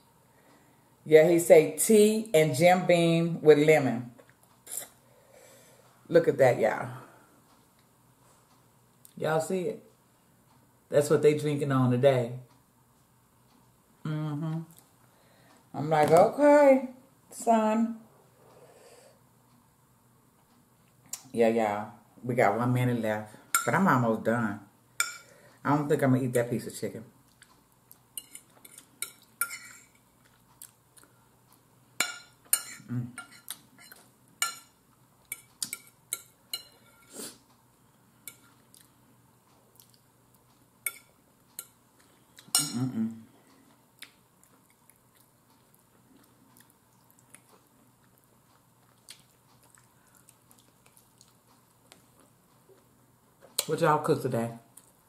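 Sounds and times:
faint chewing: 27.2s - 31.7s, 33.3s - 53.7s
fork clinking on a plate: 28.2s - 30.0s.

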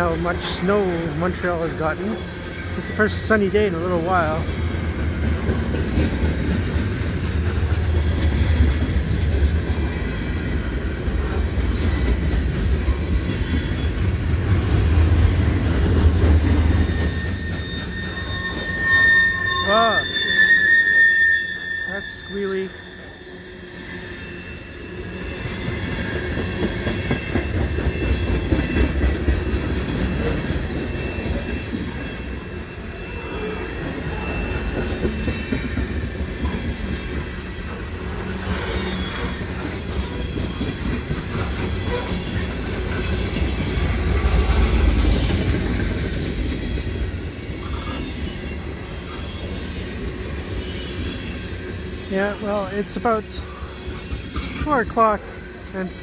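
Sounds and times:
wheels clacking over rail joints: 0.0s - 18.8s, 25.4s - 32.5s, 33.4s - 51.5s
freight train rumbling: 0.0s - 56.0s
high wheel squeal: 0.0s - 56.0s.

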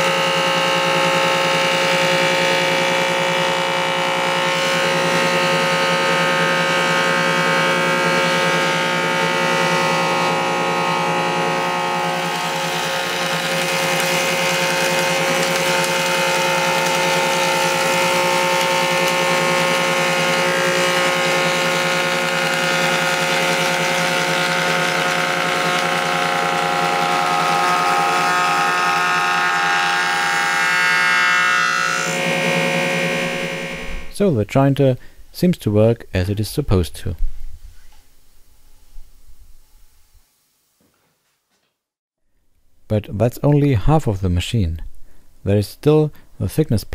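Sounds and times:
jointer cutter head whine: 0.0s - 34.2s
wood cutting hiss: 0.0s - 34.3s.

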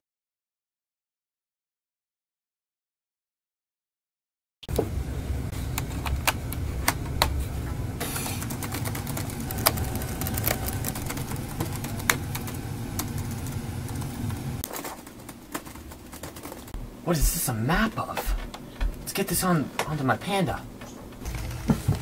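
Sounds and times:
laptop keyboard clicking: 8.3s - 16.8s.

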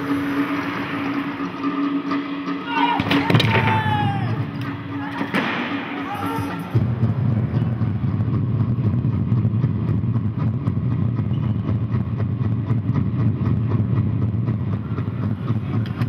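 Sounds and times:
low mechanical rumble: 6.7s - 16.0s.

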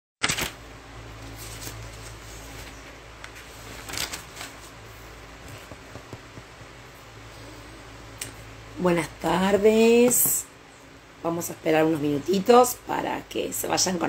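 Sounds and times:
steady low hum: 0.4s - 14.0s
handling rustling and scraping: 1.2s - 6.8s.

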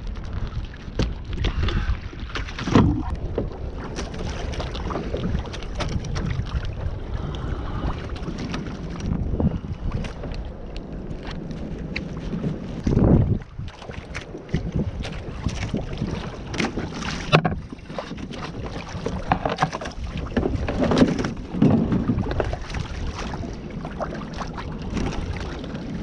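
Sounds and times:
water sloshing along hull: 0.0s - 26.0s
wind on microphone: 0.0s - 26.0s.

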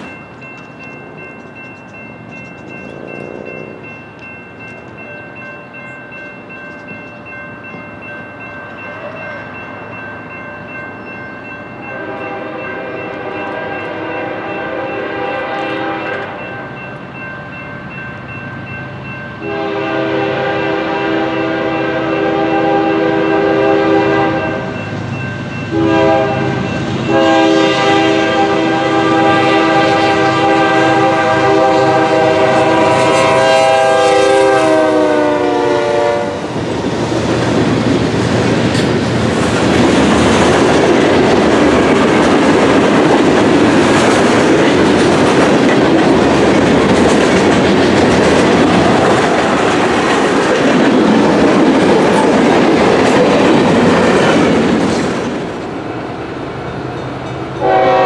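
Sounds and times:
locomotive horn blasts: 2.9s - 3.9s, 11.9s - 16.7s, 19.4s - 24.7s, 25.7s - 36.5s, 57.6s - 58.0s
freight cars clickety-clack: 36.5s - 55.8s.

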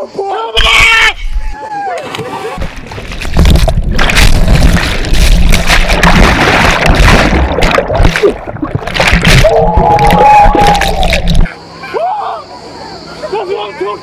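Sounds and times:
water rushing and bubbling: 2.6s - 11.5s.

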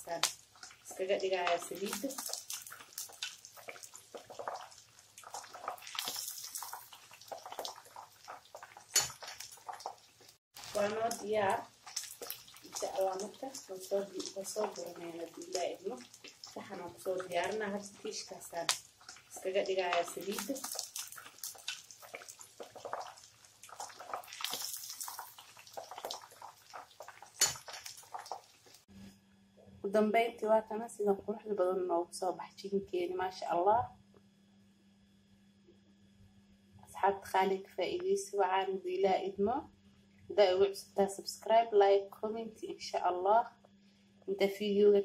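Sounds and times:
chicken deep-frying in oil: 0.0s - 28.9s.

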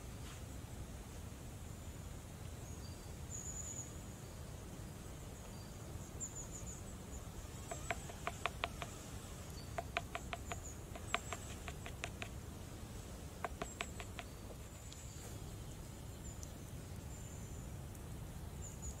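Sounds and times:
faint high chirping: 5.2s - 19.0s
wooden spoon tapping on board: 7.7s - 9.0s, 9.8s - 12.4s, 13.4s - 14.4s.

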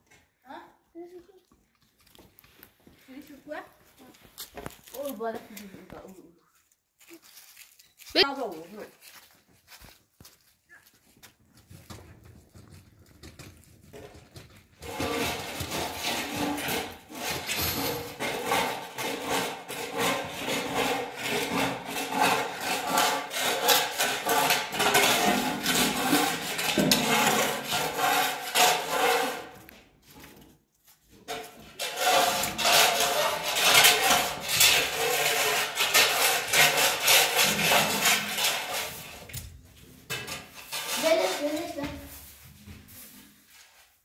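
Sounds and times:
rough scraping by hand: 14.8s - 30.3s, 31.1s - 44.0s.

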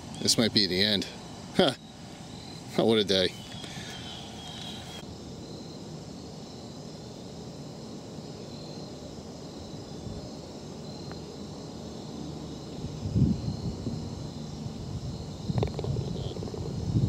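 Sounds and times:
faint insect trills: 0.0s - 17.0s
putter striking golf ball: 15.5s - 16.8s.

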